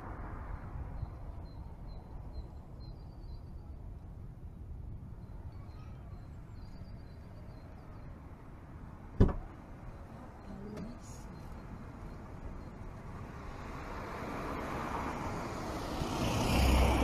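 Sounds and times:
faint bird chirps: 0:05.2 - 0:08.2.

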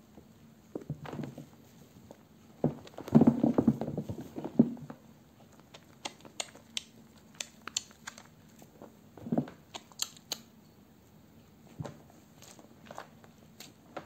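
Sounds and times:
sharp wet clicks and pops: 0:05.6 - 0:08.4, 0:09.6 - 0:10.5.

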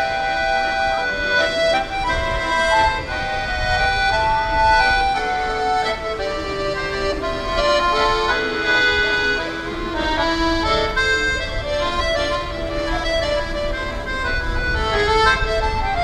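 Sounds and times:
accordion melody: 0:00.0 - 0:16.0.

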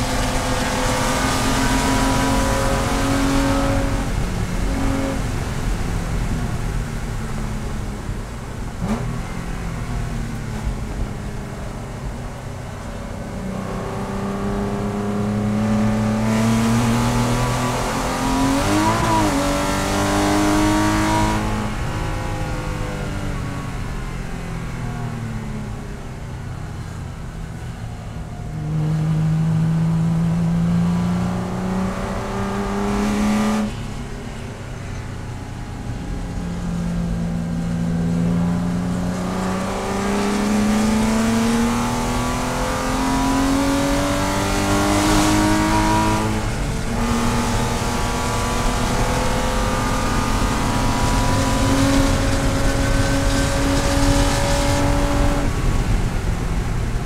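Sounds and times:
race car engine accelerating: 0:00.0 - 0:06.0, 0:12.8 - 0:22.8, 0:28.5 - 0:33.9, 0:35.7 - 0:56.7.

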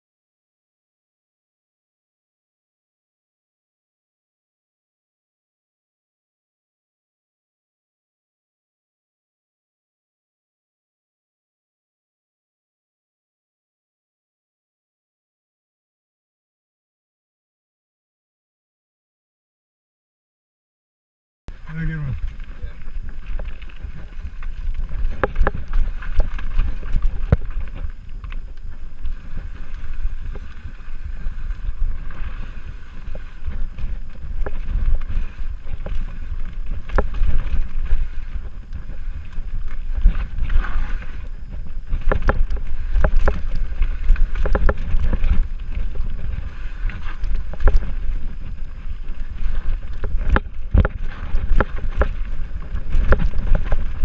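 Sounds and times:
wind buffeting microphone: 0:21.5 - 0:54.0
bike knocking and rattling: 0:22.0 - 0:54.0.

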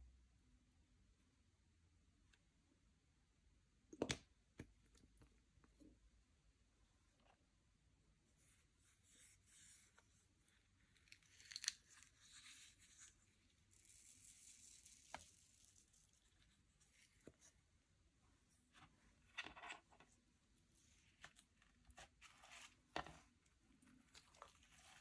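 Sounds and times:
slime crackling and tearing: 0:11.0 - 0:12.1.

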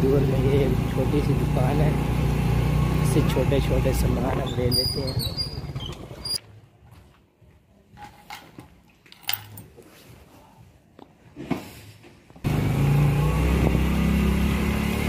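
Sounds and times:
motorcycle engine running: 0:00.0 - 0:06.4, 0:12.4 - 0:15.0
road and wind noise: 0:00.0 - 0:06.5, 0:12.4 - 0:15.0.

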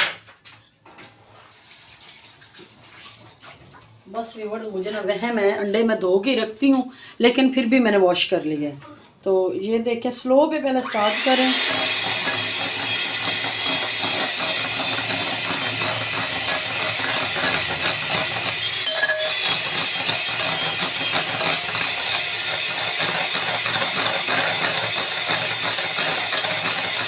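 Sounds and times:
electric hand mixer whirring: 0:10.8 - 0:27.0
beaters clinking against glass bowl: 0:18.8 - 0:19.7.

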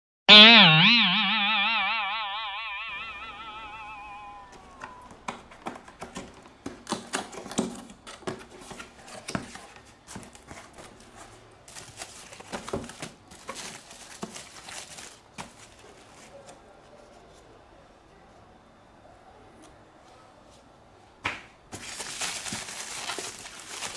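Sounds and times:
packing materials crinkling: 0:05.0 - 0:17.1, 0:21.8 - 0:23.9.

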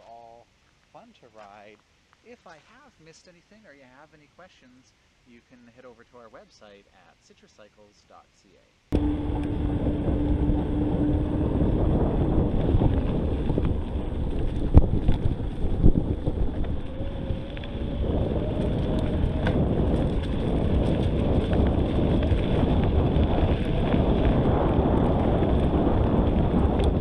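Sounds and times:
wind buffeting microphone: 0:08.9 - 0:27.0.

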